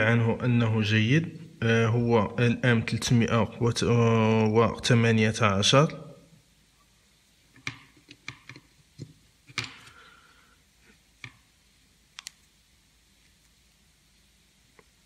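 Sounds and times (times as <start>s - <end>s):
clicks and taps on circuit board: 11.2s - 11.4s.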